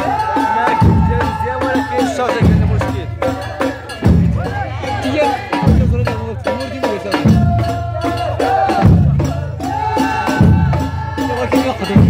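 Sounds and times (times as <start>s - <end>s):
frame drums beating: 0.0s - 12.0s
group singing: 3.0s - 5.8s, 7.2s - 11.7s.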